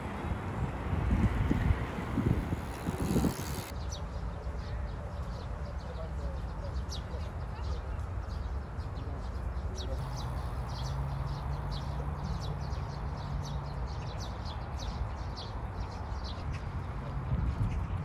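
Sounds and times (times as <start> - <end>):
birds chirping: 1.2 - 4.0, 9.3 - 16.4.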